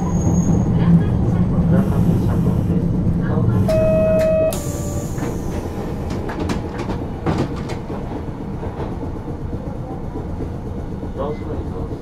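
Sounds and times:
tram running rumble: 0.0s - 12.0s
buzzer tone: 3.7s - 5.0s.

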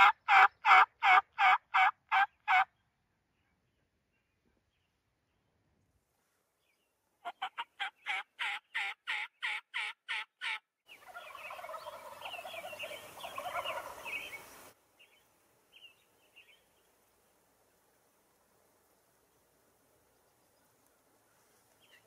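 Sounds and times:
turkey yelping: 0.0s - 2.6s, 7.2s - 14.2s
turkeys gobbling: 0.0s - 2.7s, 7.2s - 14.4s.

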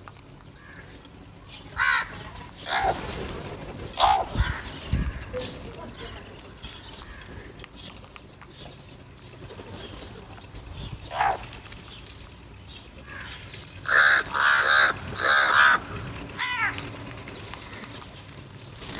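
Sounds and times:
crows cawing: 0.6s - 1.0s, 1.8s - 3.0s, 4.0s - 5.6s, 6.9s - 7.6s, 13.0s - 16.9s.

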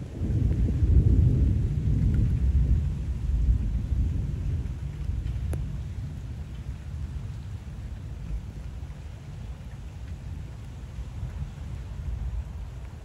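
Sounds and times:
rain falling: 0.0s - 13.0s
thunder rumbling: 0.0s - 13.0s.

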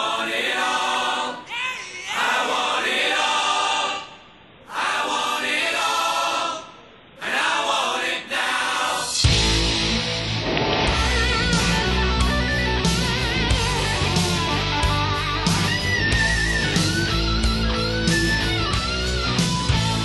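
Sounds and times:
choral singing: 0.0s - 9.8s
electric guitar: 9.2s - 20.0s.

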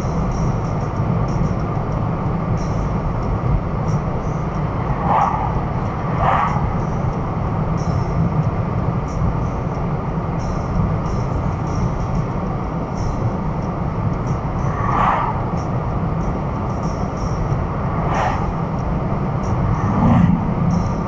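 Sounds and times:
road and engine noise in car: 0.0s - 21.0s
oncoming car passing: 2.7s - 9.0s, 14.0s - 21.0s.

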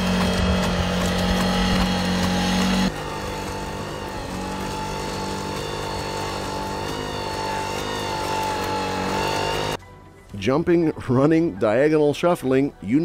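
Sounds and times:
robot engine droning: 0.0s - 9.8s.

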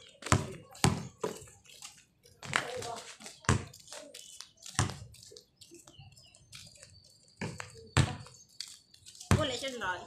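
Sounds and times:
basketball bouncing: 0.2s - 1.1s, 3.5s - 3.7s, 7.4s - 8.3s.

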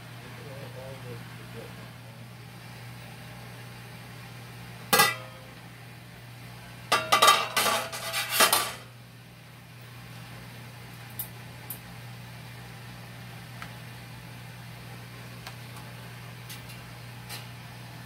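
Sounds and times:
lid clattering on stovetop: 5.0s - 5.3s
metal pot lid clanking: 5.0s - 5.4s, 6.9s - 8.8s.

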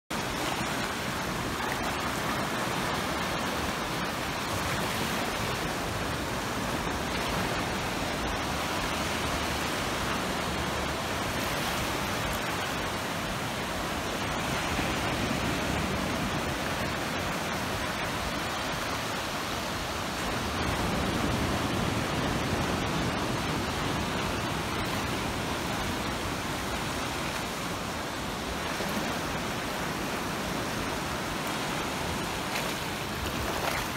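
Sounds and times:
waves breaking on beach: 0.1s - 33.9s
waves washing over rocks: 0.1s - 33.9s.

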